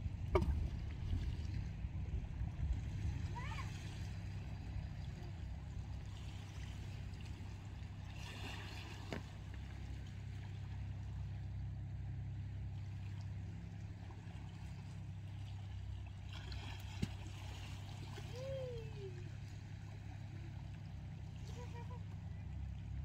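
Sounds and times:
low rumble: 0.0s - 23.0s.

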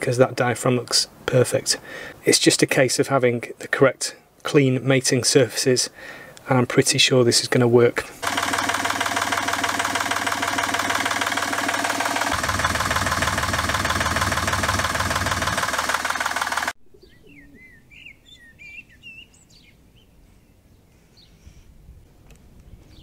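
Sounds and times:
diesel engine clattering: 8.2s - 16.8s
faint bird chirps: 16.8s - 21.7s.

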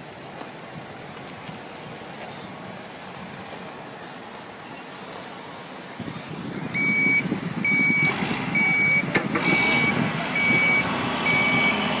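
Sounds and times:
truck engine running: 6.2s - 12.0s
truck reversing alarm beeping: 6.7s - 12.0s.

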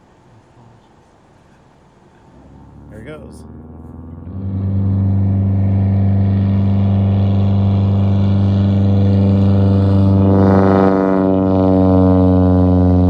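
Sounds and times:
propeller airplane engine drone: 0.0s - 13.0s.

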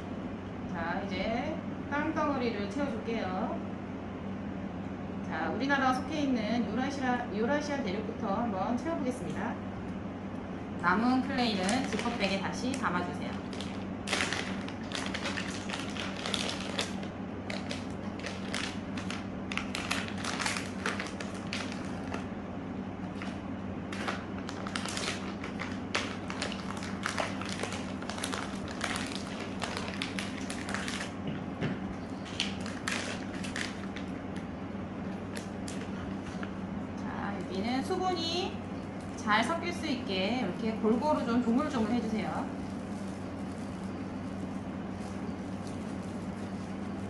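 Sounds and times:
steady low hum: 0.0s - 47.0s
plastic bags crinkling: 11.3s - 22.3s, 23.1s - 31.2s, 32.0s - 34.2s.

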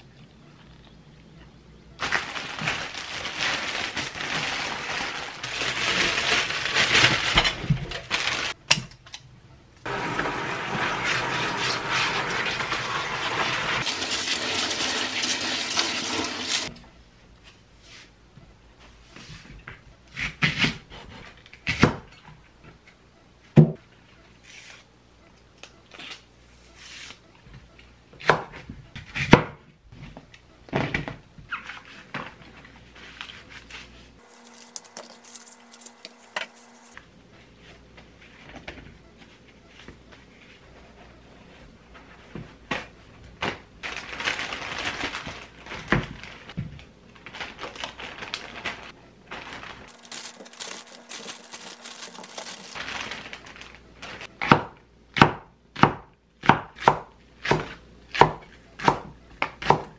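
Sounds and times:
paper towel rustling: 2.0s - 8.6s, 32.8s - 37.0s, 43.8s - 54.4s.

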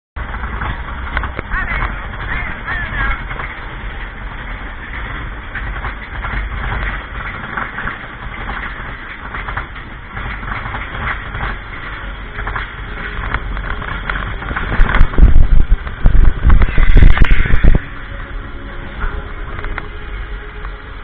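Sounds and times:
coaster cars rattling: 0.2s - 21.0s
roller coaster rumbling on track: 0.2s - 21.0s.

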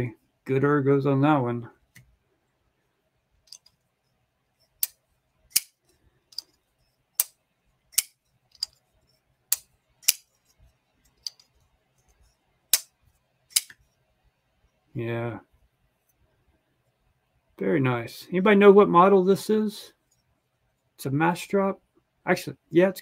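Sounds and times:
folding knife blade clicking: 13.5s - 13.7s.

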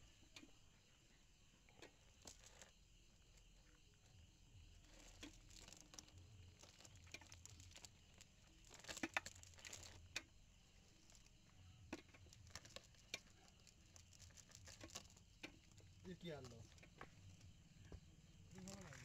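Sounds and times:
fishing net rustling: 1.7s - 2.8s, 4.8s - 17.5s, 18.5s - 19.0s.

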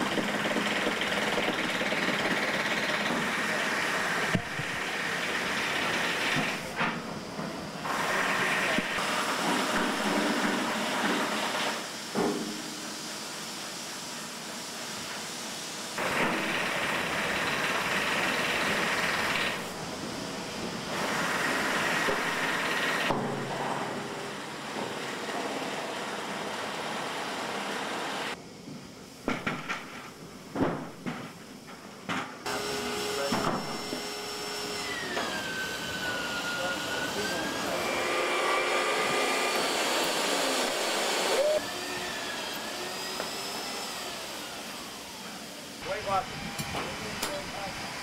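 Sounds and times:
drill motor running: 0.0s - 6.8s, 7.8s - 12.0s, 16.0s - 19.9s, 20.9s - 23.2s, 32.5s - 48.0s
hiss: 0.0s - 28.4s, 32.4s - 48.0s.

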